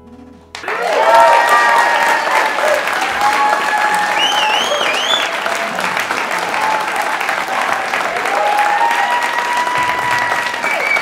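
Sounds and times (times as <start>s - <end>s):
audience applauding: 0.6s - 11.0s
wavering whistle: 3.6s - 5.4s, 10.4s - 11.0s.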